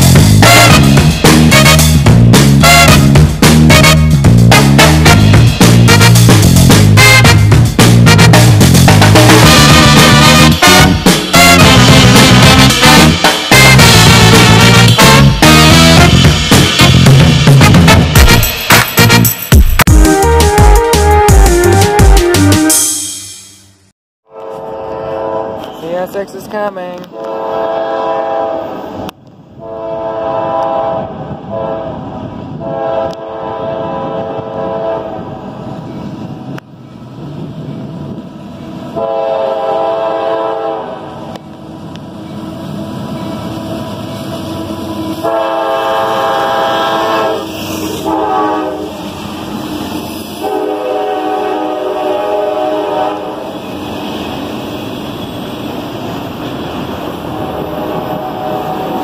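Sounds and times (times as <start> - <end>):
train rumbling over rails: 0.0 - 22.6, 24.3 - 59.0
locomotive air horn blasts: 0.4 - 2.0, 2.6 - 6.4, 7.0 - 8.6, 9.4 - 16.2, 24.3 - 25.8, 27.1 - 28.8, 29.6 - 32.0, 32.6 - 35.3, 39.0 - 41.2, 45.1 - 49.0, 50.4 - 53.5, 57.4 - 59.0.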